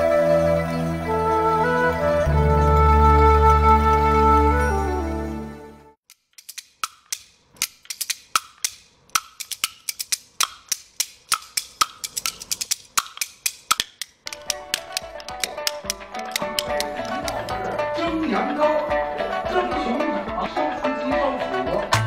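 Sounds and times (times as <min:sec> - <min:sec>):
background music: 0:00.0 - 0:06.0, 0:14.3 - 0:22.0
bamboo clappers clacking: 0:06.0 - 0:22.0.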